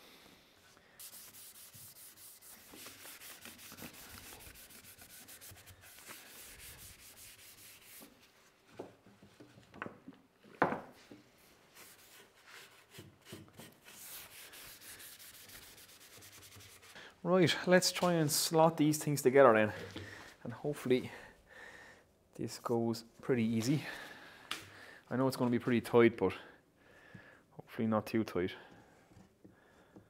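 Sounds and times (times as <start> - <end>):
cloth rubbing on wood: 1.0 - 8.5, 11.7 - 13.0, 13.6 - 17.0.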